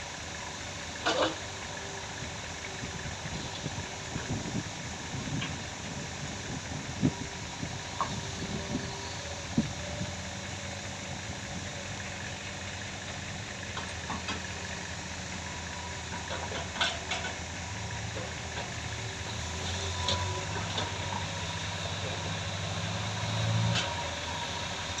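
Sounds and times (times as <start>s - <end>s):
diesel engines running: 0.0s - 25.0s.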